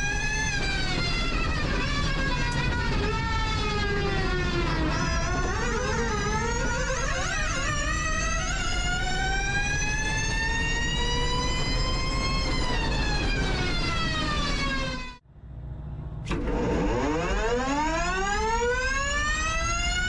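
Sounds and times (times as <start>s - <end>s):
low road and drivetrain rumble: 0.0s - 20.0s
electric car motor whine: 16.3s - 20.0s.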